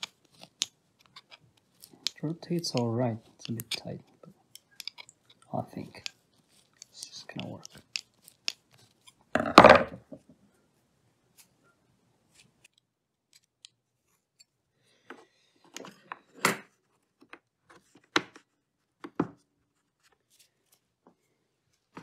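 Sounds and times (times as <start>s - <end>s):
small parts clicking on plastic: 0.0s - 9.3s, 12.6s - 13.8s.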